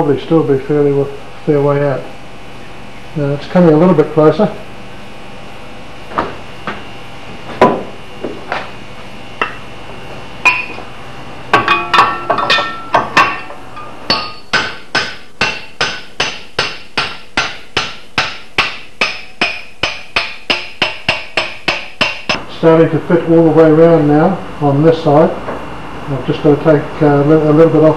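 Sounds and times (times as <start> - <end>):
short metallic ring: 11.6 - 14.5.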